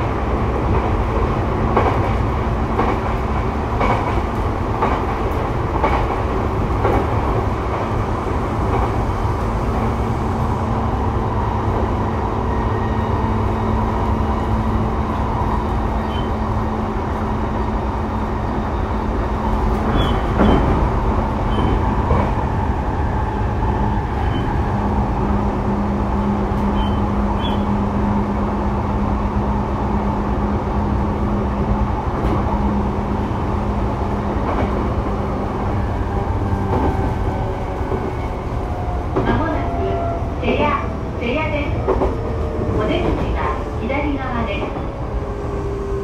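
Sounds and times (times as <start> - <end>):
train wheels rumbling on rail: 0.0 - 46.0.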